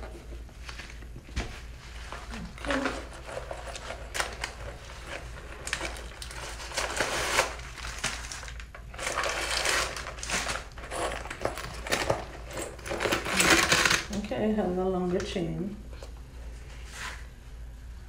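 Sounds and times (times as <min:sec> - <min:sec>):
tissue paper rustling and crinkling: 0:00.6 - 0:12.0.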